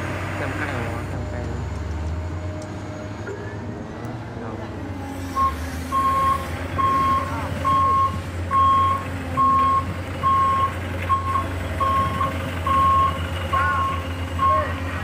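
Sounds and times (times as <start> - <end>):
reversing alarm beeping: 5.4 - 15.0.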